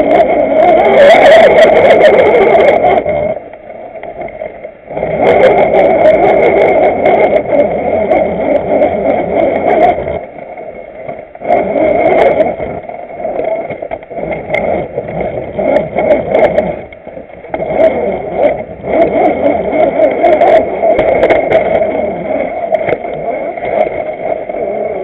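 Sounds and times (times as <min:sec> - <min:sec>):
toy car motor whining: 0:00.0 - 0:03.3, 0:17.6 - 0:25.0
scattered clicks: 0:00.1 - 0:24.6.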